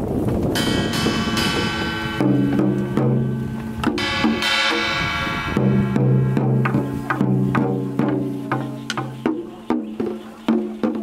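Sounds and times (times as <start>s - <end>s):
sustained pitched notes: 0.6s - 9.6s
drum strikes: 0.6s - 11.0s.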